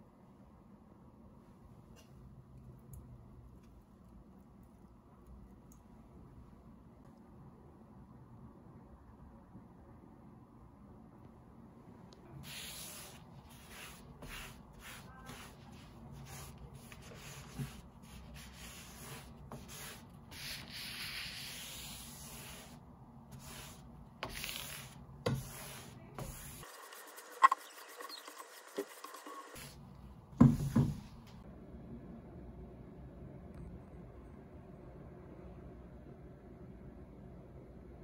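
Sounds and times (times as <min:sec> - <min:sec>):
cloth rubbing on a desktop: 0:12.4 - 0:29.8.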